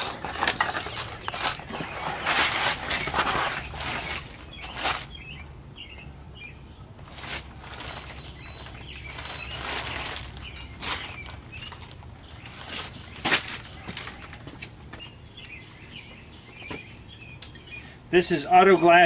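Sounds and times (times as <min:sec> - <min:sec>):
faint bird chirps: 0:03.6 - 0:14.4.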